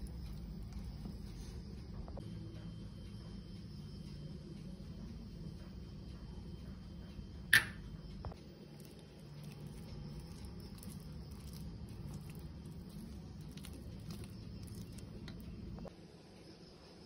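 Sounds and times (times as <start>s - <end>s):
low steady rumble: 0.0s - 16.0s
spatula stirring mashed potatoes: 8.4s - 15.9s.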